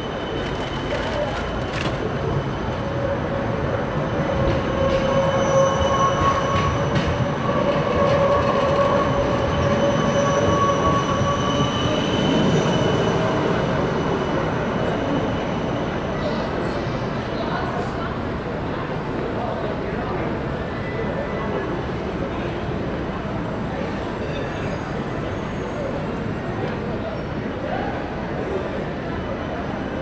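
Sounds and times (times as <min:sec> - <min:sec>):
tram electric whine: 0:00.0 - 0:30.0
tram wheels on rails: 0:00.0 - 0:30.0.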